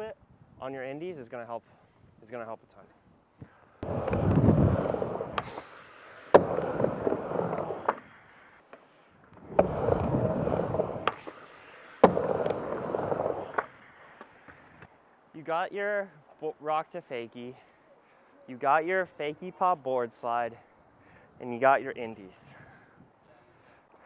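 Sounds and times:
skateboard wheels rolling on ramp: 3.8s - 8.6s, 9.3s - 14.9s
skateboard sharp clacks: 3.8s - 8.8s, 9.4s - 14.9s.

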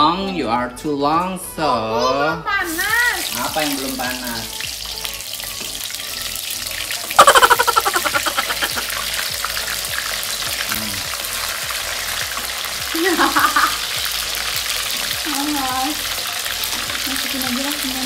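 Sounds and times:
chicken sizzling in oil: 2.6s - 18.0s
oil crackling and spattering: 2.7s - 18.0s.

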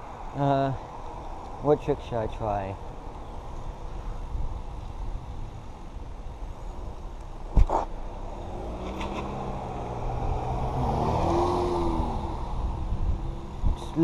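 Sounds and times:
vehicle engine passing: 8.1s - 14.0s.

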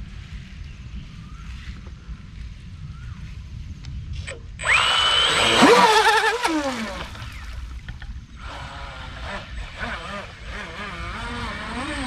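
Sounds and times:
electric motor whine: 4.4s - 12.0s
churned water rushing: 5.2s - 7.8s.

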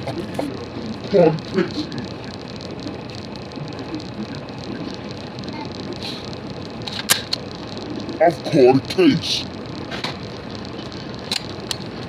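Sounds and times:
faint murmur: 0.0s - 12.0s
sharp click: 11.3s - 11.8s.

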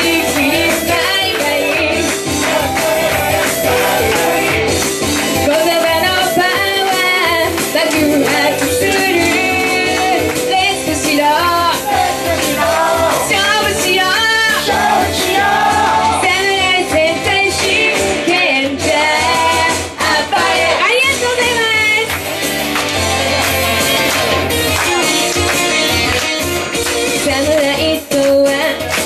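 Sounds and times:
woman singing into a microphone: 0.0s - 2.2s, 5.3s - 12.0s, 13.2s - 14.8s, 16.1s - 22.0s, 27.2s - 29.0s
upbeat pop backing music: 0.0s - 29.0s.

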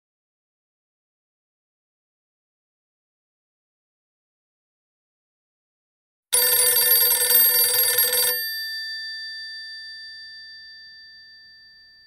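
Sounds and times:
telephone bell ringing: 6.4s - 12.0s.

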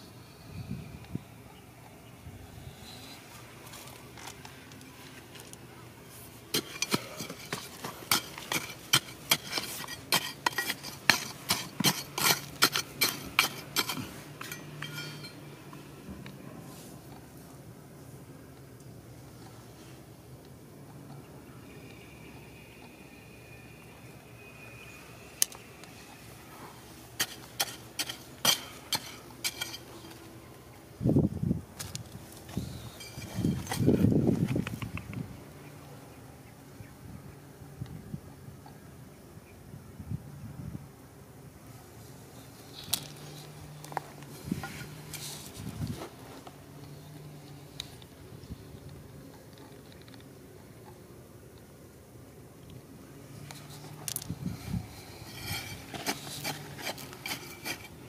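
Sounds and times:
metal tool chopping stony soil: 6.5s - 15.4s, 27.2s - 30.2s, 55.3s - 58.0s.

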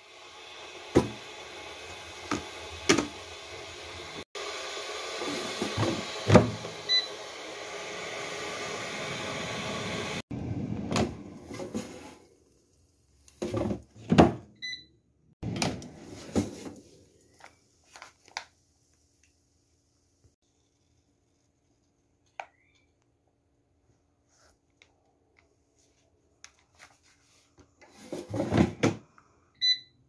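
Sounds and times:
air fryer whirring: 0.0s - 12.0s.

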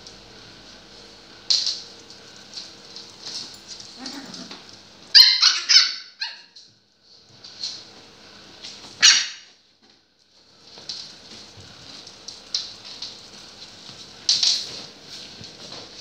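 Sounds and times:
puppies yipping and whining: 4.0s - 6.5s
high-pitched puppy yelps: 5.1s - 6.6s, 9.0s - 9.5s.

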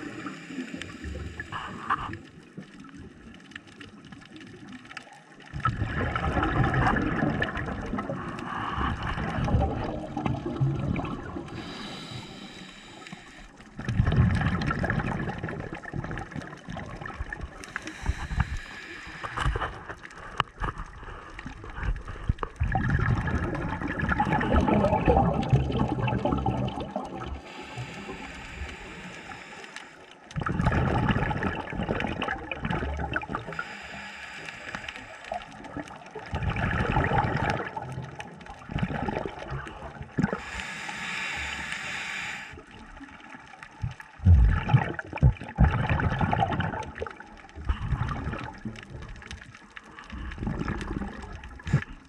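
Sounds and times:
diver breathing underwater: 0.0s - 2.4s, 5.9s - 14.6s, 17.3s - 22.5s, 23.2s - 31.7s, 32.6s - 35.9s, 39.0s - 42.8s
bubbles gushing: 0.9s - 11.8s, 13.6s - 28.9s, 30.3s - 33.7s, 34.8s - 40.6s, 42.6s - 52.0s.

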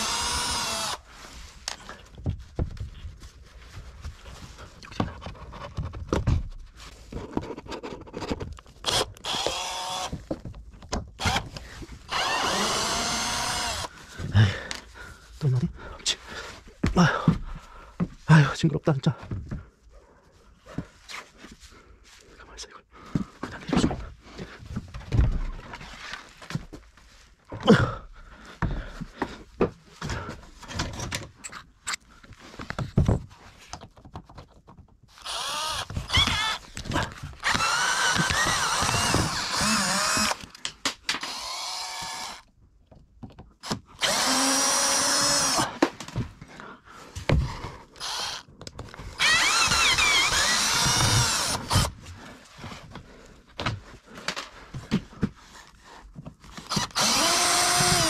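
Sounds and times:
power drill whirring: 0.0s - 1.1s, 8.8s - 10.2s, 11.2s - 13.9s, 35.2s - 40.5s, 41.1s - 42.5s, 43.6s - 45.7s, 48.0s - 48.5s, 49.1s - 52.0s, 56.6s - 58.0s
knocks and clatter of parts: 4.8s - 9.5s, 28.6s - 31.9s, 32.6s - 35.1s.

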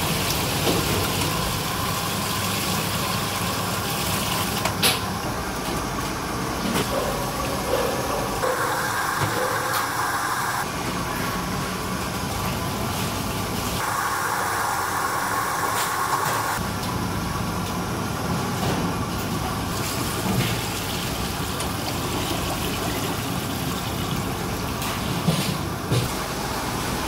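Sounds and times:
machine drone: 13.8s - 16.7s.

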